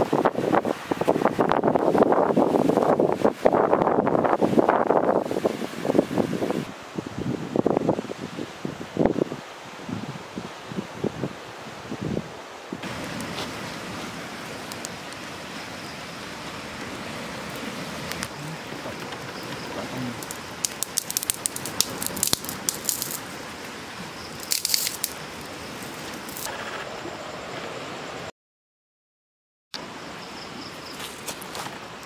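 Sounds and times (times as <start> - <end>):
campfire crackling: 12.8 - 26.6.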